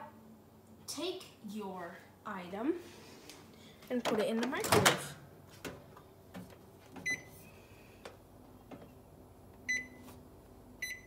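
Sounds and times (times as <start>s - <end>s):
microwave oven beeping: 7.0s - 7.4s, 9.6s - 10.2s, 10.8s - 11.0s.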